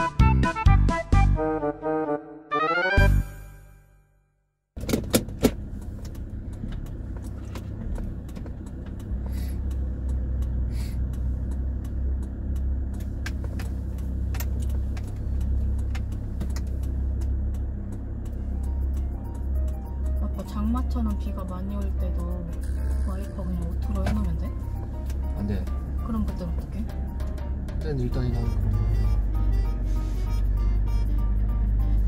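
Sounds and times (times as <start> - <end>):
car road and engine rumble: 4.8 - 32.0
light clicks and ticks: 5.8 - 28.5.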